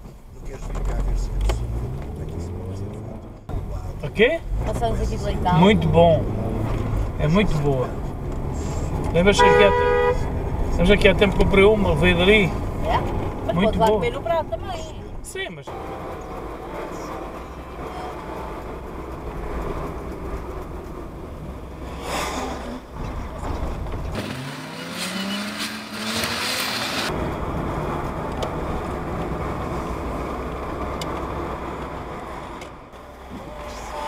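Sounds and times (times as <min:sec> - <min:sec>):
car engine and road rumble: 0:00.0 - 0:34.0.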